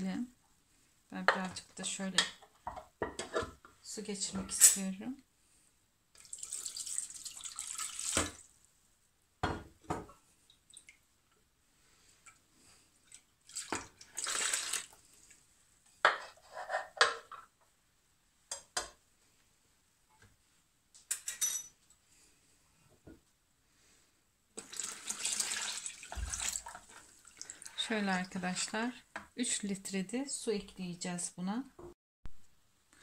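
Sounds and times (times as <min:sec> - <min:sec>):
liquid splashing: 0:06.2 - 0:08.5, 0:13.0 - 0:15.0, 0:24.6 - 0:27.8
running water: 0:06.2 - 0:08.5, 0:13.0 - 0:15.4, 0:24.6 - 0:28.6
dishware knocking and clinking: 0:09.4 - 0:10.1.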